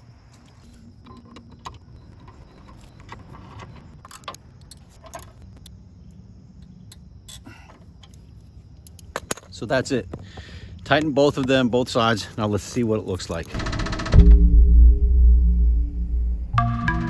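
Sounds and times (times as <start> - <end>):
low background rumble: 14.1 - 16.6.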